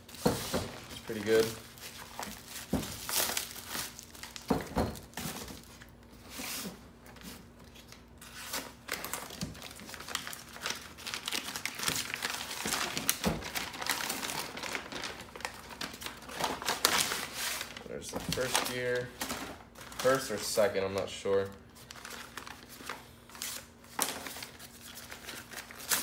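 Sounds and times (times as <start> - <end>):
paper crinkling and tearing: 1.0 - 4.5, 5.6 - 26.0.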